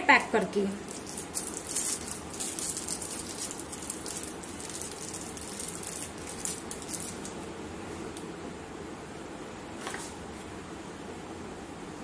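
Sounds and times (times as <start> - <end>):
low room noise: 0.0 - 12.0
plastic piping bag crinkling: 0.8 - 7.4.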